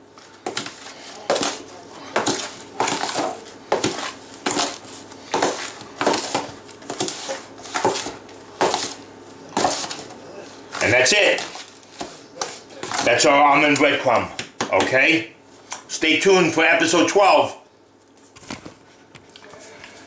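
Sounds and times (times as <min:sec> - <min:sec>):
metal spoon scraping dry mix: 0:00.2 - 0:13.3.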